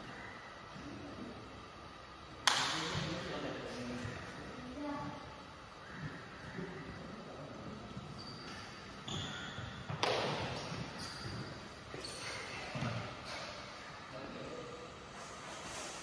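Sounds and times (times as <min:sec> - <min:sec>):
sports shoes squeaking: 0:07.9 - 0:13.7.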